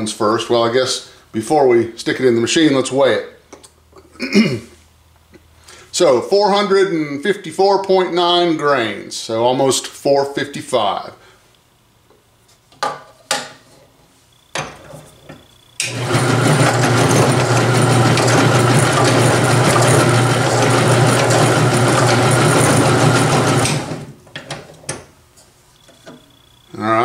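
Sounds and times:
ball rolling in roller: 0:14.6 - 0:24.9
drill press motor running: 0:15.8 - 0:24.2.

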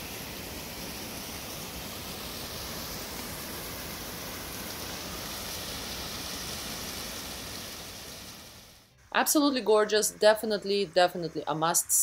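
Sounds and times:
water rushing under ice: 0:00.0 - 0:08.9.

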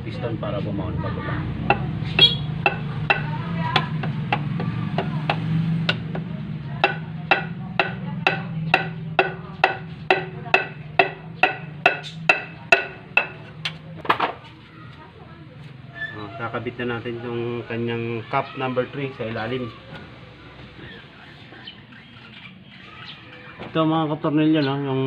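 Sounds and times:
sharp wooden knocks on piston: 0:01.7 - 0:14.4.

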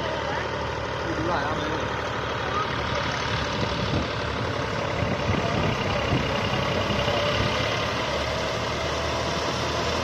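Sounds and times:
tractor engine hum: 0:00.0 - 0:10.0.

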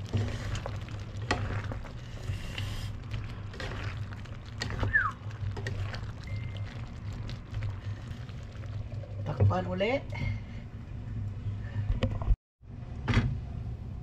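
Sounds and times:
wooden spatulas scraping a pan: 0:00.0 - 0:05.0
sauce squelching: 0:00.0 - 0:09.2.

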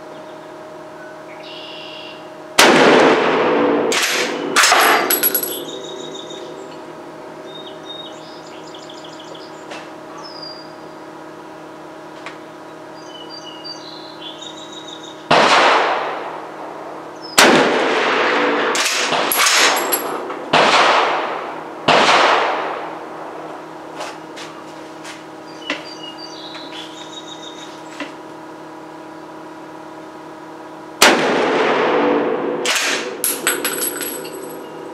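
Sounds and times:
sharp gunshot cracks: 0:02.6 - 0:05.0, 0:15.3 - 0:16.3, 0:17.4 - 0:19.8, 0:20.5 - 0:22.9, 0:31.0 - 0:33.2
rifle shots: 0:02.6 - 0:05.6, 0:15.3 - 0:16.3, 0:17.4 - 0:22.9, 0:31.0 - 0:33.4
birds chirping: 0:05.5 - 0:06.8, 0:07.4 - 0:11.1, 0:12.4 - 0:15.3, 0:25.4 - 0:28.0.

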